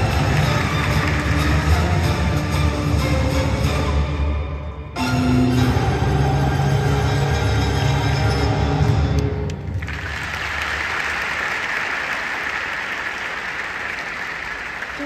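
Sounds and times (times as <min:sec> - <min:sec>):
audience applause: 0:00.0 - 0:02.3, 0:09.5 - 0:15.0.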